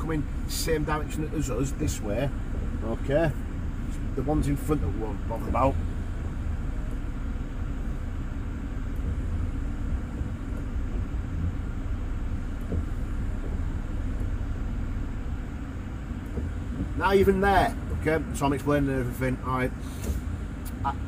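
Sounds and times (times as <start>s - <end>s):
car engine idling: 0.0s - 21.0s
faint light ticks: 12.5s - 14.4s, 20.0s - 20.9s.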